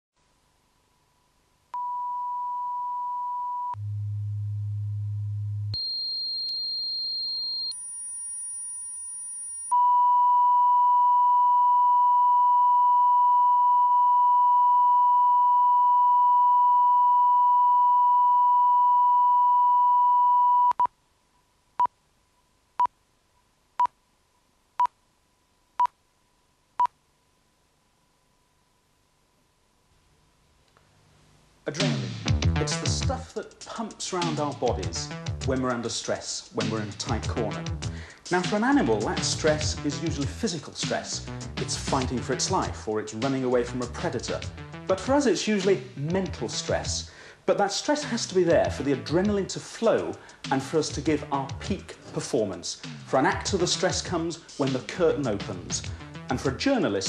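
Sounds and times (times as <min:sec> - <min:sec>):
long reference tone: 0:01.8 - 0:20.6
pure test tones: 0:01.8 - 0:20.9.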